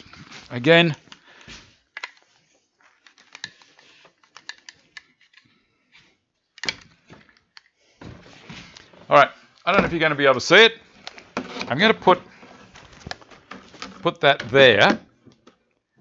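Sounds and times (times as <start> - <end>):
plastic clicks and rustles: 0.0 - 5.6, 11.0 - 11.7, 12.5 - 15.9.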